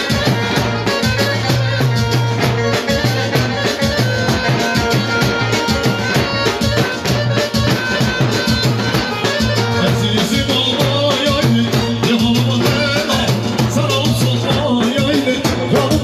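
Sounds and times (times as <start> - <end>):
electronic dance music: 0.0 - 16.0
programmed drum rhythm: 0.0 - 16.0.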